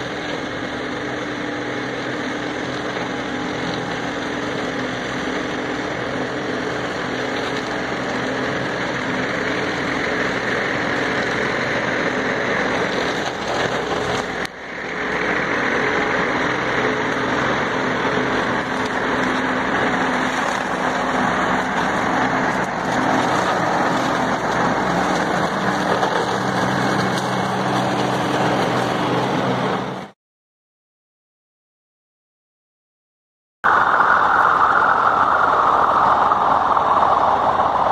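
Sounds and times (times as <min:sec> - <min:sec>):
mower cutting grass and brush: 0:00.0 - 0:30.1
tractor diesel engine under load: 0:00.0 - 0:30.2, 0:33.6 - 0:37.9.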